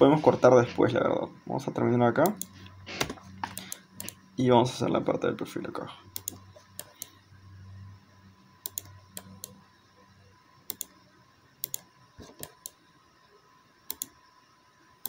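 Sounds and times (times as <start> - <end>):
faint low hum: 0.0 - 15.0
computer mouse clicking: 2.2 - 4.2, 6.2 - 7.2, 8.6 - 9.6, 10.7 - 10.9, 11.6 - 12.8, 13.9 - 14.2.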